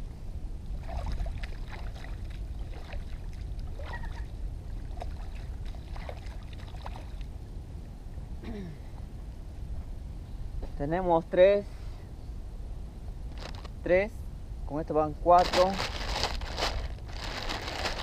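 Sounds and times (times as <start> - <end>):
steady low rumble: 0.0 - 18.0
hands sloshing fish in water: 0.8 - 4.2
small splashes: 0.8 - 7.3.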